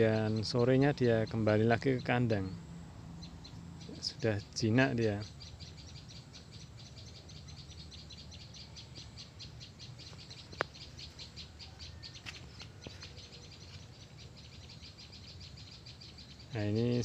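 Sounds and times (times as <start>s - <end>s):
high-pitched chirping: 0.0s - 17.0s.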